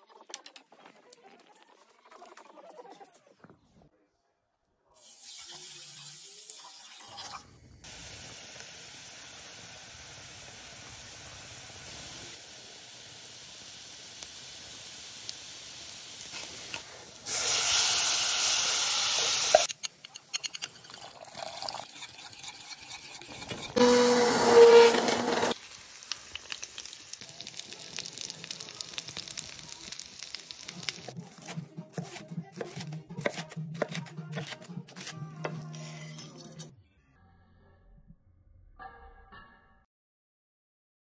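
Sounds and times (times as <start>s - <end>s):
vegetables sizzling in a saucepan: 5.0s - 19.7s, 23.8s - 31.4s.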